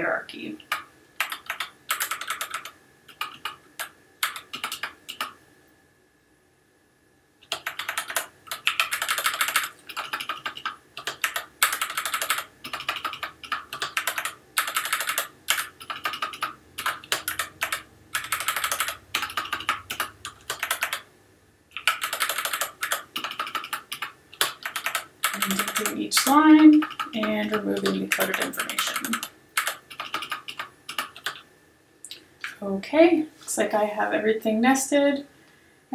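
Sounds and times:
keyboard typing: 0:00.6 - 0:05.4, 0:07.4 - 0:21.1, 0:21.7 - 0:31.5.

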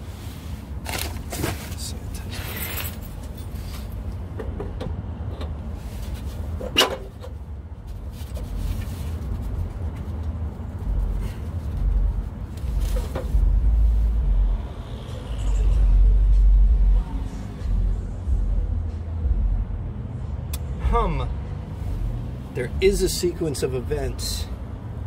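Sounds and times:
low rumble: 0:10.6 - 0:21.0.

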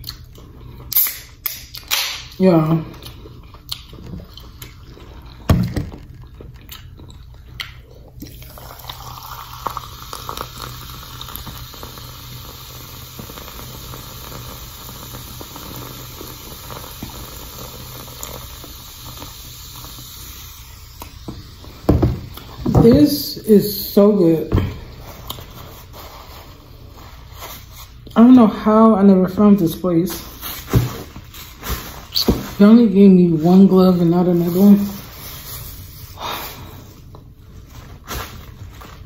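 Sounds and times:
cola fizzing pour into glass: 0:08.3 - 0:20.6.

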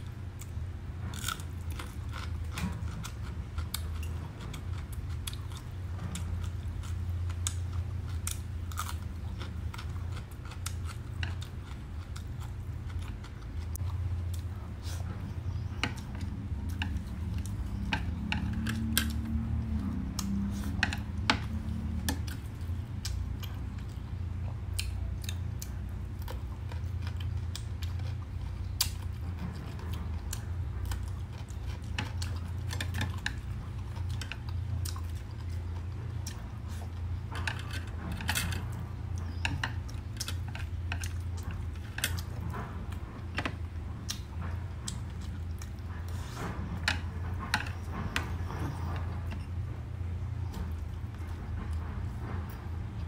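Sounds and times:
chewing and crunching: 0:00.0 - 0:53.0
steady low hum: 0:00.0 - 0:53.0.

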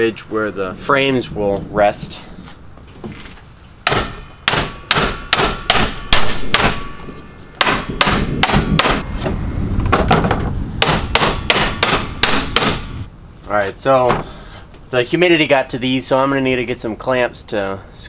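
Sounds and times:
hammer knocking on wooden box: 0:03.8 - 0:06.8, 0:07.6 - 0:09.0, 0:10.0 - 0:12.9.

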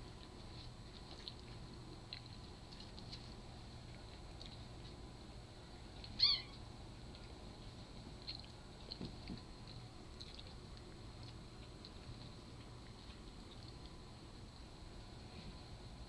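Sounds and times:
kitten mewing: 0:06.2 - 0:06.6.

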